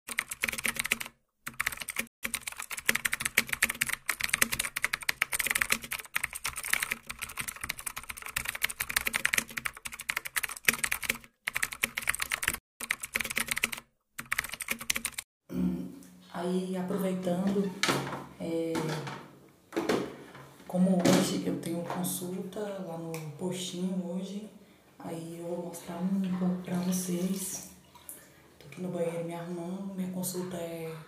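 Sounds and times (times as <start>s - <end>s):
keyboard typing clicks: 0.1s - 15.2s.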